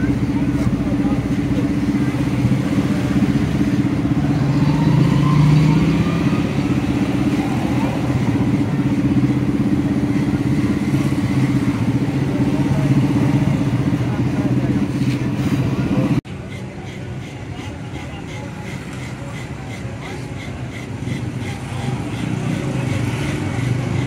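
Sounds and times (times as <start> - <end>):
small engine running: 16.9 - 24.0.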